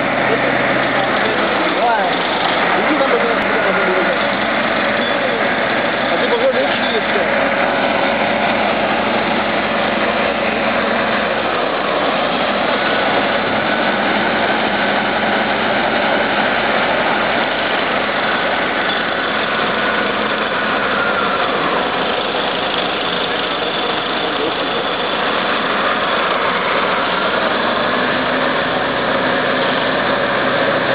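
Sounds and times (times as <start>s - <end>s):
heavy diesel engines under load: 0.0s - 30.9s
truck engine running: 0.0s - 30.9s.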